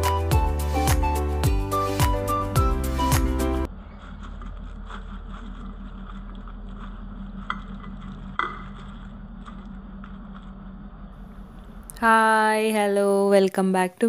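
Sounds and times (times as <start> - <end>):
music: 0.0 - 3.7
steady low hum: 3.6 - 13.0.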